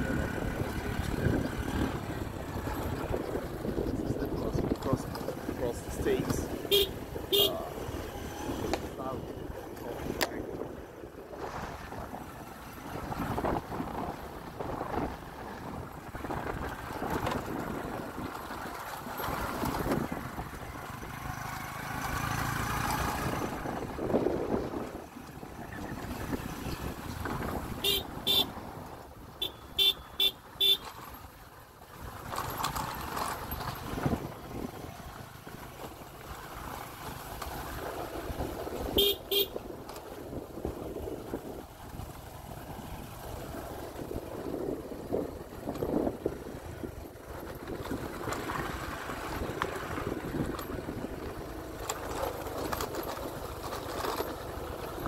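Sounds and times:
wind buffeting microphone: 0.0s - 20.9s, 23.0s - 29.4s, 33.6s - 35.8s, 37.6s - 51.6s
motorbike engine rumble: 0.0s - 55.0s
motorcycle horn beeps: 6.6s - 7.6s, 27.8s - 28.5s, 29.4s - 30.9s, 38.9s - 39.6s.

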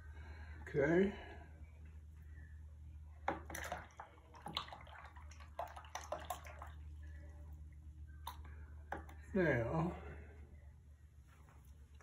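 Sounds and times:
water splashing in a jar: 3.2s - 7.1s.

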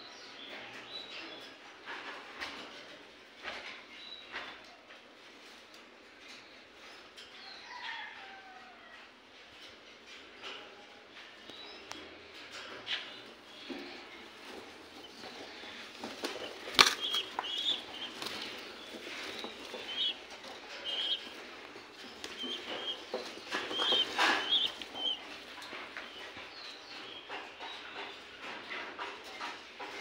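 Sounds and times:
rustling in cage: 8.9s - 30.0s
pigeons chirping: 11.5s - 30.0s.

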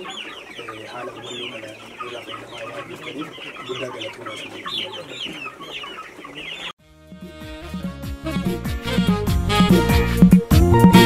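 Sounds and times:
hens clucking: 0.0s - 6.8s.

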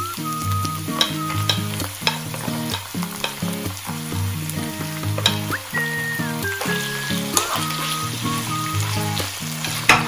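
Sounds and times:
tuna sizzling in hot oil: 0.0s - 10.0s
wooden spatula tapping and scraping: 0.9s - 5.6s, 9.2s - 10.0s.

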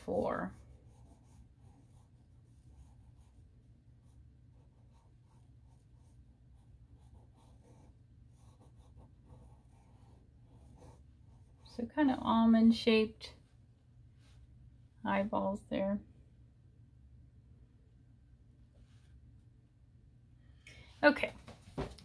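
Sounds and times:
pencil scratching on paper: 0.0s - 12.3s
low steady hum: 0.0s - 22.0s.

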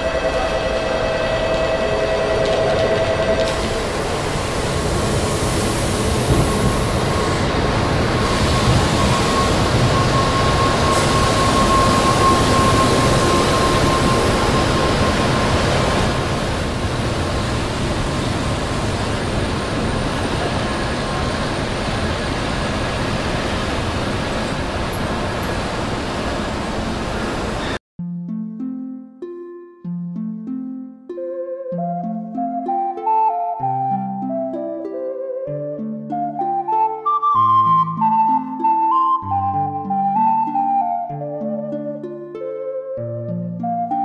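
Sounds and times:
train wheels and air rushing: 0.0s - 27.8s.

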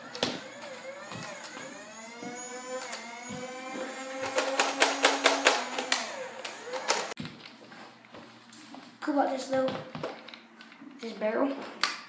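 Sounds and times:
flywheel motors whining: 0.0s - 7.2s
rapid trigger clicks: 4.2s - 7.2s.

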